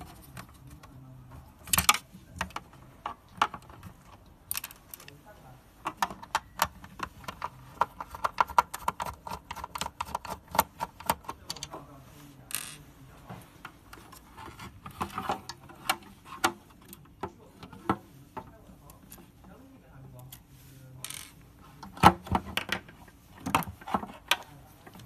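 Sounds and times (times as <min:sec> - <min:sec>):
plastic and metal parts clicking: 0:01.6 - 0:05.2, 0:05.8 - 0:11.7.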